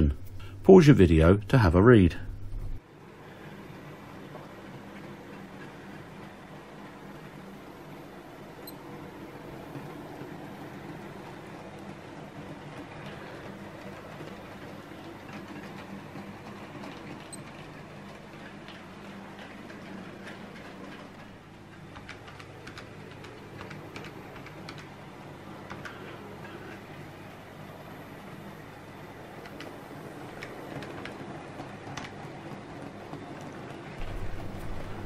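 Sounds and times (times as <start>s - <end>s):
track clicks: 8.6s - 27.3s, 28.6s - 35.0s.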